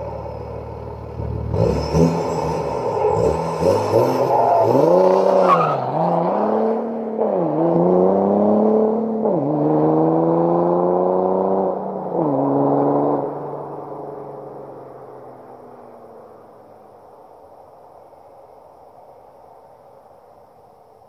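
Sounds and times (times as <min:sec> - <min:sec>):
diesel car exhaust accelerating: 0:00.0 - 0:17.6.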